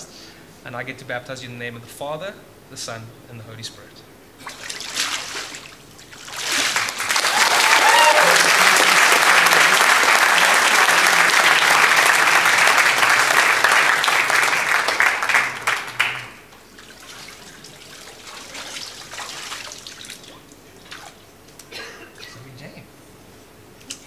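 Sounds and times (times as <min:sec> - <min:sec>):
water splashing and dripping: 0:04.4 - 0:07.0, 0:16.7 - 0:21.3
congregation applauding: 0:06.3 - 0:16.6.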